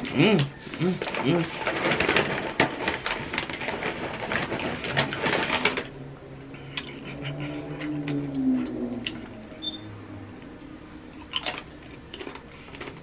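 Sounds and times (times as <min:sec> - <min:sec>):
chewing crunchy chip: 0:06.6 - 0:09.2, 0:11.2 - 0:13.0.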